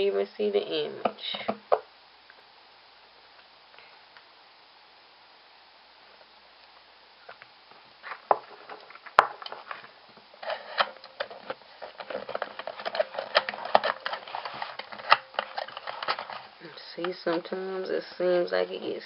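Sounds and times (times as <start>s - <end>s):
plastic machine clicking: 10.7s - 16.5s.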